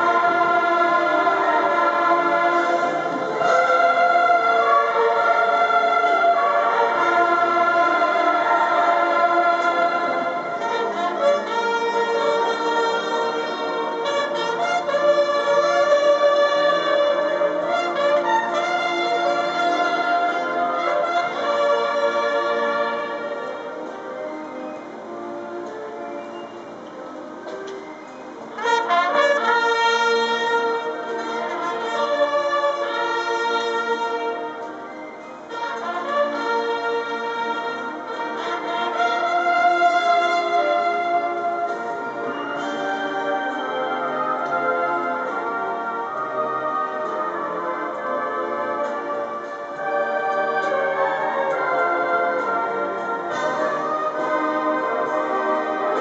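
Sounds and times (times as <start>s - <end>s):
military brass band playing chords: 0.0s - 27.6s, 28.3s - 56.0s.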